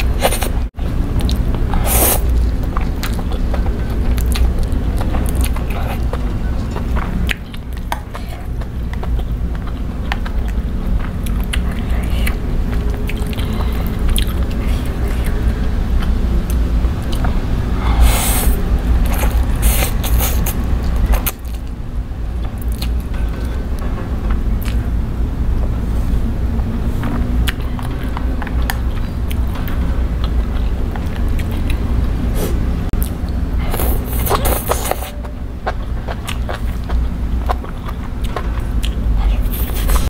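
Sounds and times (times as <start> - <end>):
wet chewing and mouth clicks: 0.0 - 21.8, 22.4 - 24.9, 27.0 - 40.0
steady low hum: 0.0 - 40.0
noodle slurping: 33.6 - 36.8.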